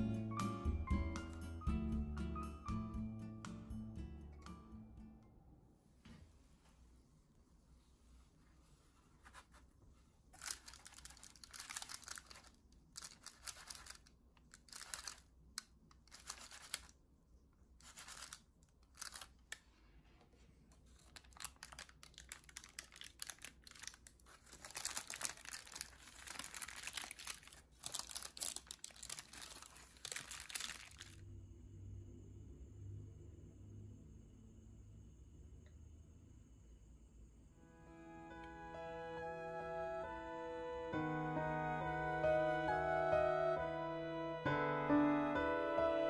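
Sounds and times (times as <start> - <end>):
baking paper crinkling: 9.1 - 15.4, 16.0 - 17.0, 17.8 - 19.8, 20.6 - 31.2.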